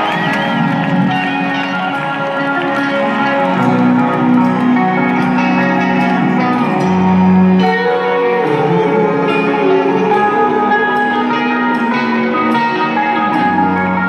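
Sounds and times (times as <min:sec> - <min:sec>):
distant live rock band: 0:00.0 - 0:14.0
electric guitar long held notes: 0:00.0 - 0:14.0.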